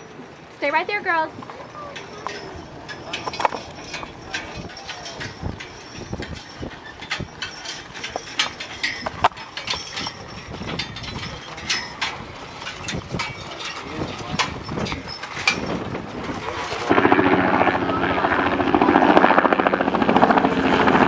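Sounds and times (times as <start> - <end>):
harness and wagon clicks: 1.2 - 16.9
hooves clopping: 1.2 - 16.9.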